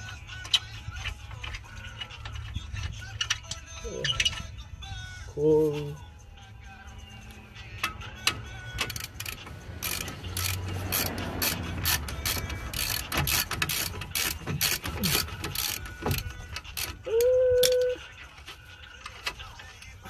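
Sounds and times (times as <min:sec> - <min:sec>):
hand ratchet clicking: 0:07.8 - 0:18.0.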